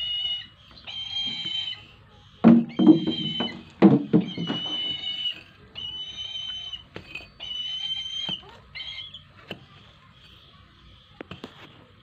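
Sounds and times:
bird whistled screams: 2.7s - 9.3s.

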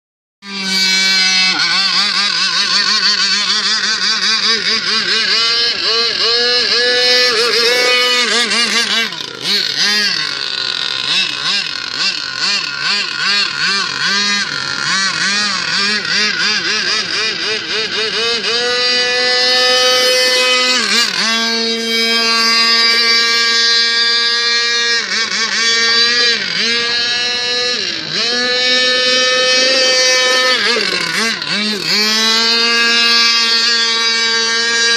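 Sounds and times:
model boat engine revving: 0.4s - 34.9s.

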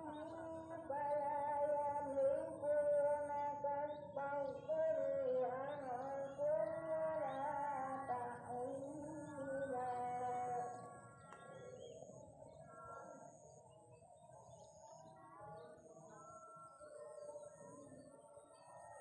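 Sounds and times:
person singing slow melody: 0.0s - 13.6s.

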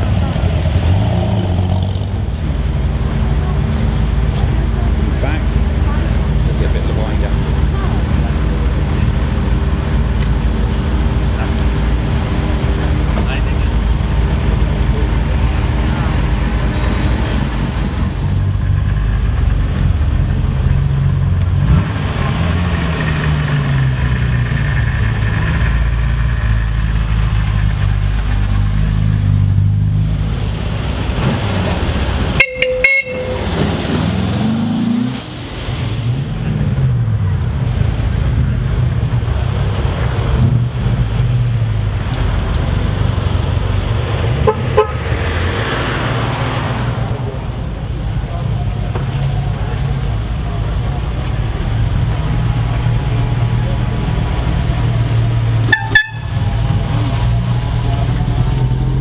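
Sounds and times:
car engines revving: 0.0s - 59.0s
car horn toot: 32.4s - 33.7s, 44.4s - 45.0s, 55.7s - 56.5s.

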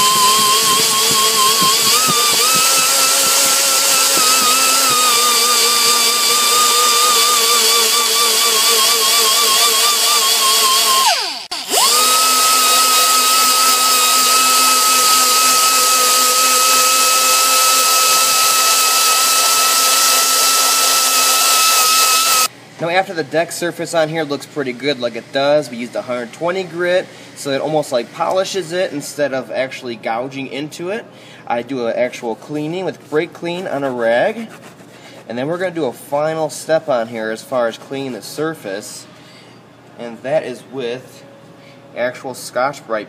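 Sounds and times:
rotary tool whining: 0.0s - 22.5s.

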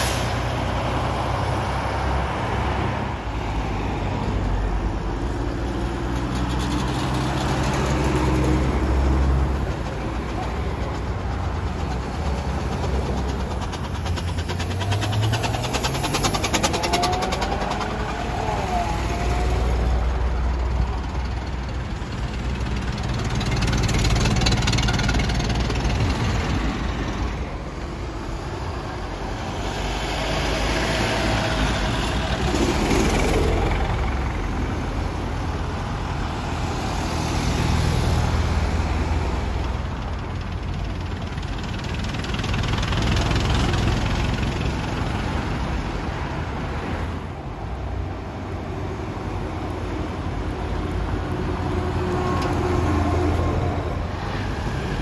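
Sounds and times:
vehicle engines passing: 0.0s - 55.0s.

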